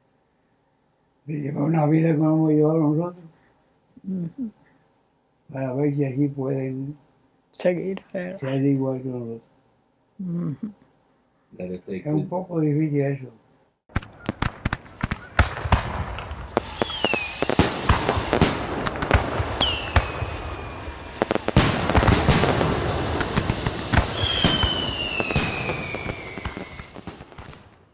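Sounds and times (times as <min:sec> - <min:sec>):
fireworks banging and crackling: 0:13.9 - 0:27.9
falling firework whistles: 0:14.0 - 0:27.9.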